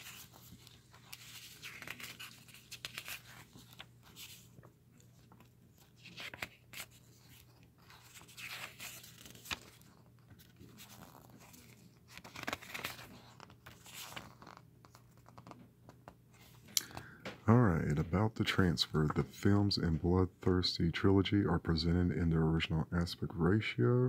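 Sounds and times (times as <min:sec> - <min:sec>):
paper pages rustling: 0:00.0 - 0:17.1.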